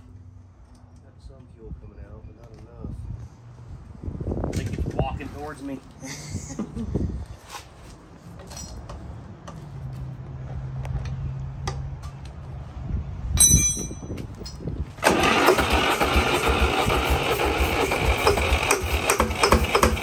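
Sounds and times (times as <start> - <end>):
diesel engine running: 14.8 - 20.0.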